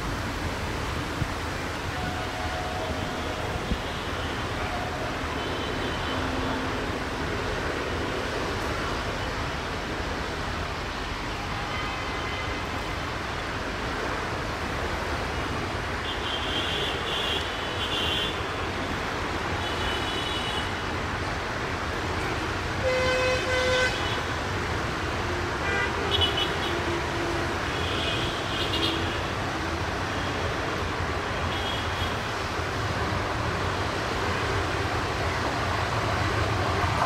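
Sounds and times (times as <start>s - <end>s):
locomotive horn: 22.8s - 24.3s.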